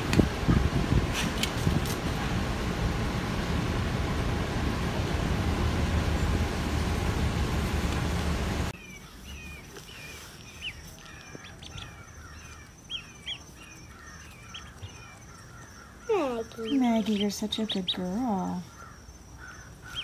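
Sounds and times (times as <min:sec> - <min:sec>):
ducklings peeping: 0:08.8 - 0:20.0.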